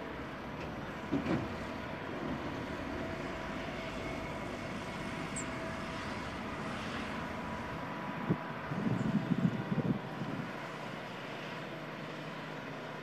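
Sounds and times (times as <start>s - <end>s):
distant diesel locomotive drone: 0.0s - 13.0s.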